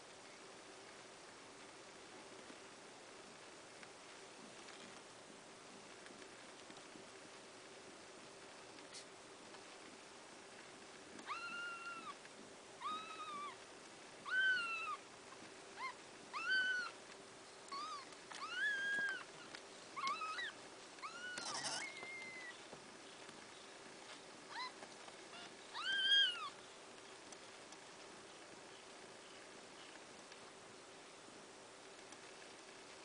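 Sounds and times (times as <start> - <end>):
kittens mewing: 11.2 - 12.2, 20.0 - 22.6.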